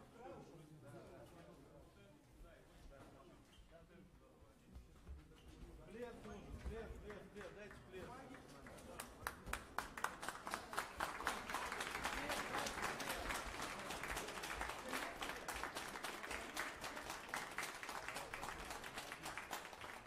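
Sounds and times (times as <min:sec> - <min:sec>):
spectators applauding: 0:07.1 - 0:20.0.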